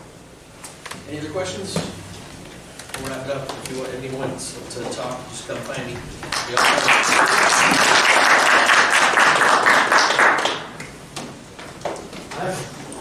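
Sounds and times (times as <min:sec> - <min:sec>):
audience applauding: 0:06.3 - 0:10.8.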